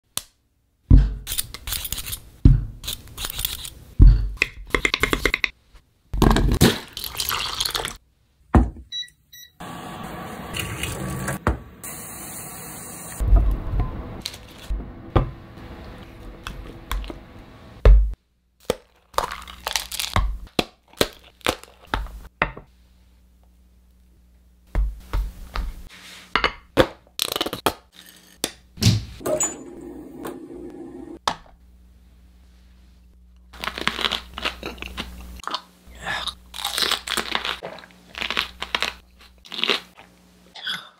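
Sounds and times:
aluminium foil crinkling: 18.9s - 20.2s, 33.6s - 35.2s, 36.5s - 39.9s
steady appliance hum: 28.1s - 40.6s.

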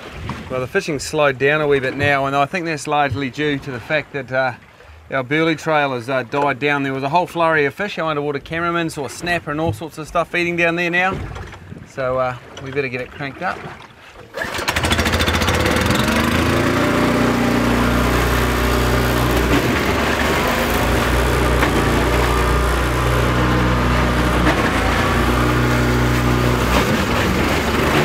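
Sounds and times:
wood chipper engine running: 14.4s - 28.0s.

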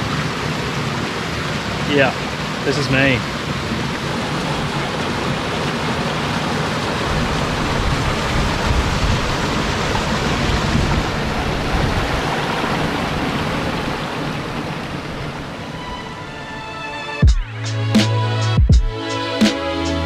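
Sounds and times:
creek cascade splashing over rocks: 0.0s - 15.4s.

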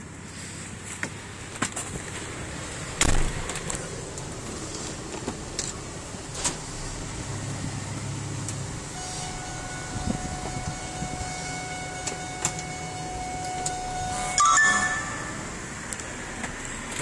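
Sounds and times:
loud thump: 3.0s - 3.4s
steady tone: 14.1s - 15.8s.

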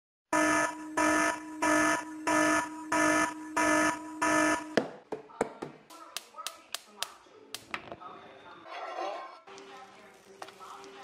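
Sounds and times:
electronic alarm beeping: 0.3s - 4.8s.

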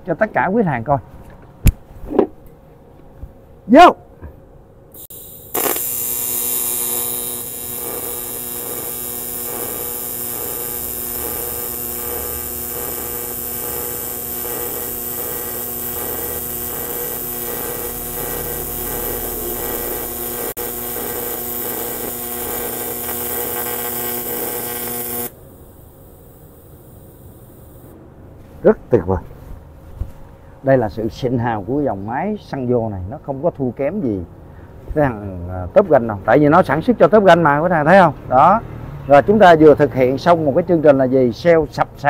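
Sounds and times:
welding arc buzzing: 4.9s - 27.9s.

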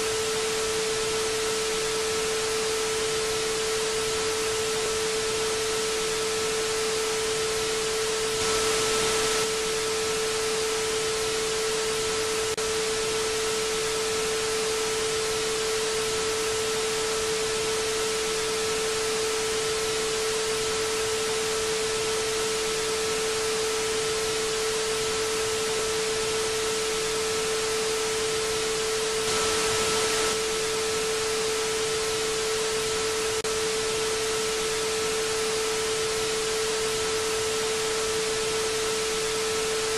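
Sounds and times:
television static hiss: 4.8s - 12.2s, 25.6s - 31.8s.

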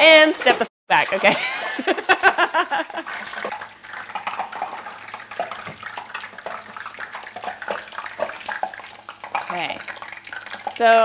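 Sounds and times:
deep-frying oil bubbling hiss: 1.6s - 11.0s
oil pops and crackles: 3.0s - 11.0s.

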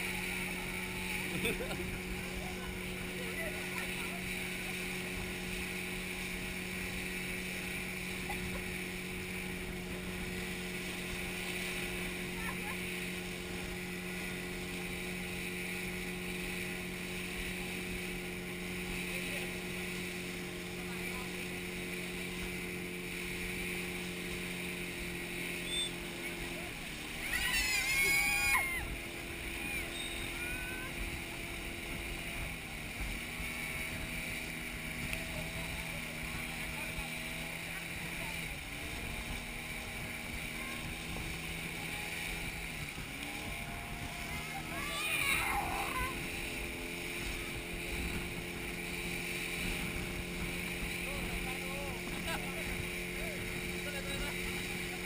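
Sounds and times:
motorboat engine drone: 0.0s - 55.0s
water rushing and spraying: 0.0s - 55.0s.

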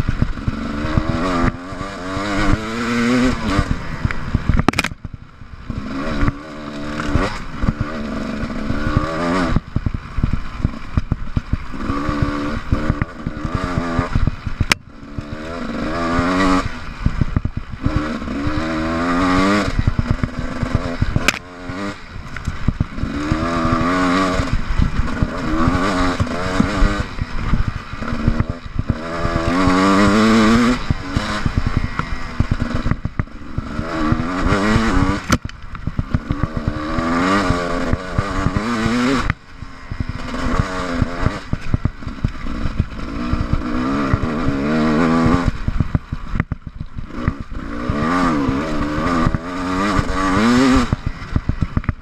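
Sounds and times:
motorcycle knocking over bumps: 0.0s - 14.9s, 15.9s - 39.4s, 40.0s - 52.0s
motorcycle engine revving: 0.0s - 52.0s.

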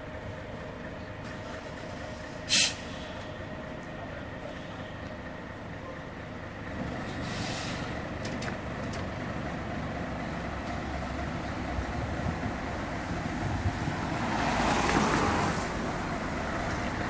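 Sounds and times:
bus diesel engine idling: 0.0s - 14.3s, 15.1s - 17.0s
air release hiss: 2.5s - 3.2s, 7.2s - 8.0s.

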